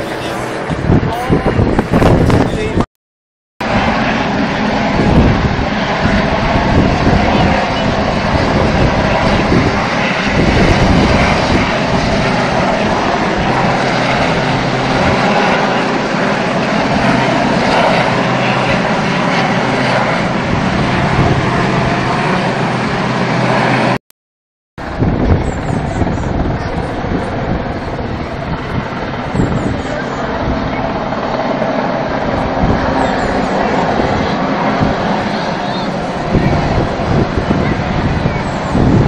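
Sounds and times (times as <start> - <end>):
helicopter flying past: 0.0 - 2.8, 3.6 - 24.0, 24.8 - 39.0.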